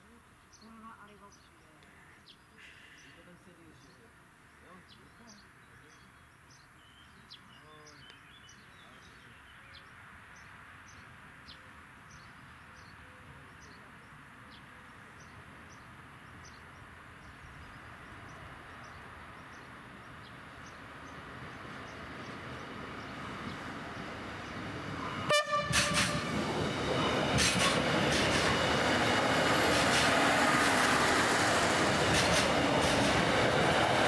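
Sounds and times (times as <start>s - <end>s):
small birds chirping: 0.0s - 25.2s
diesel train approaching: 17.4s - 34.0s.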